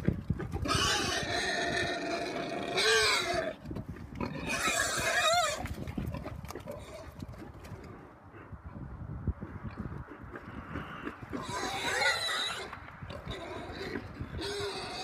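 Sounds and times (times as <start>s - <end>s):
pigs squealing: 0.6s - 3.6s, 4.2s - 7.2s, 10.1s - 15.0s.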